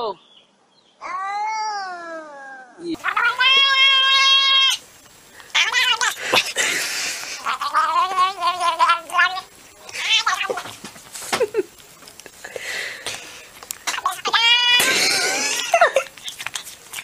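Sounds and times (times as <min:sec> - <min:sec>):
cat meowing and yowling: 0:01.0 - 0:04.8, 0:05.6 - 0:06.2, 0:14.1 - 0:14.9.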